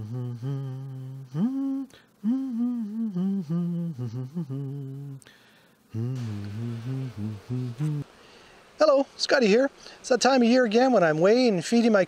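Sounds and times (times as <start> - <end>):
man humming a tune: 0.0 - 8.1.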